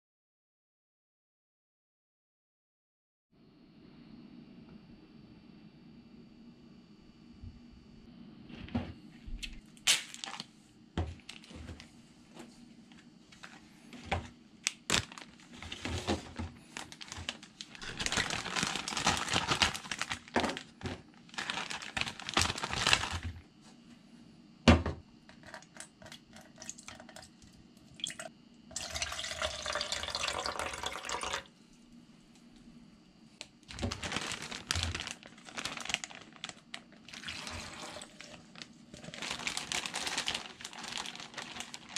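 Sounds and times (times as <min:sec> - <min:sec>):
plastic bag crinkling: 0:09.8 - 0:10.5, 0:14.6 - 0:23.4, 0:33.6 - 0:41.9
liquid pouring into bag: 0:14.8 - 0:23.2, 0:25.6 - 0:27.4, 0:28.0 - 0:31.5, 0:33.7 - 0:41.9.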